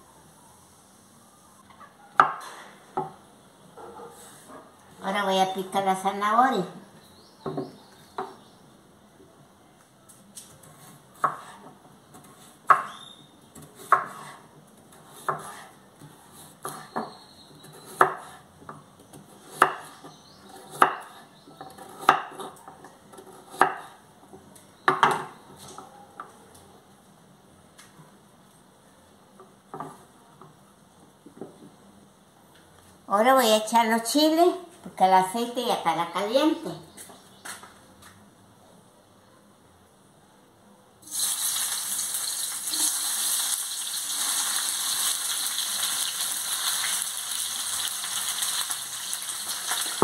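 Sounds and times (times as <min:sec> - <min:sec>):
knife chopping on wooden board: 0:11.2 - 0:12.9, 0:13.6 - 0:14.4, 0:15.0 - 0:15.7, 0:17.7 - 0:18.4, 0:19.2 - 0:22.6, 0:23.2 - 0:24.0.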